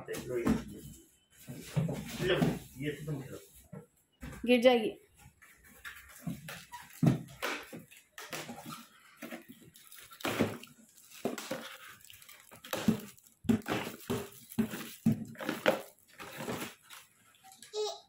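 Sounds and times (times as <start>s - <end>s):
plastic wrap crinkling: 6.4s - 17.5s.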